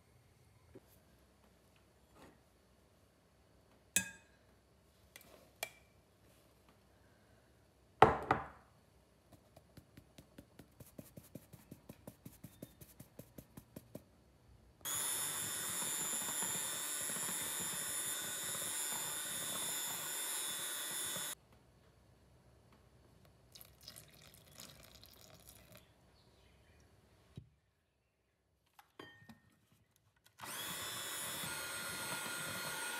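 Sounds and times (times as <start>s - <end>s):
electric hand mixer running: 14.9s - 21.4s, 30.4s - 32.9s
liquid being poured: 23.5s - 25.8s.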